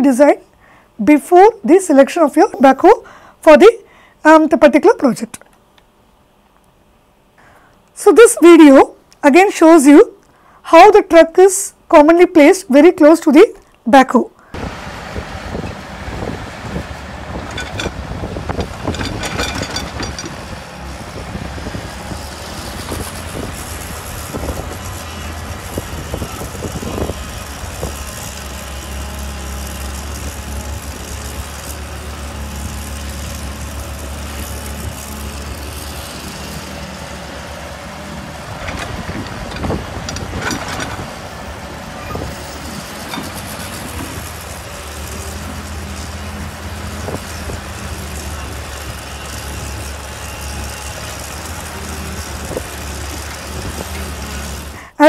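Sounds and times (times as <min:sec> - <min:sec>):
excavator diesel engine humming: 0:14.5 - 0:55.0
excavator bucket clanking: 0:17.3 - 0:20.6, 0:38.5 - 0:41.3.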